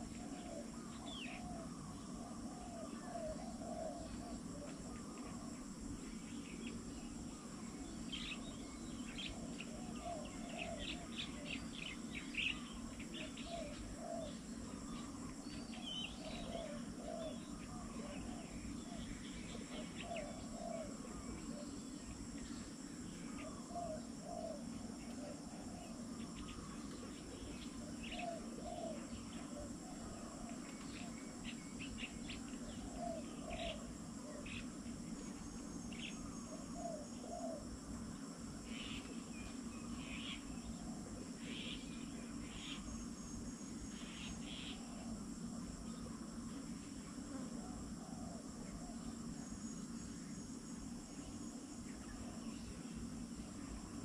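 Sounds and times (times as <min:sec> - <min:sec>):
bird calls: 0:00.0 - 0:05.5, 0:08.1 - 0:22.7, 0:23.3 - 0:34.7, 0:35.4 - 0:37.6
insect trilling: 0:00.0 - 0:37.8, 0:38.4 - 0:54.0.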